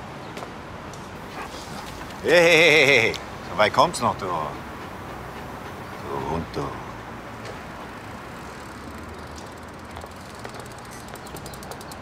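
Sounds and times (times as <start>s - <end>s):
faint clicks: 7.4s - 12.0s.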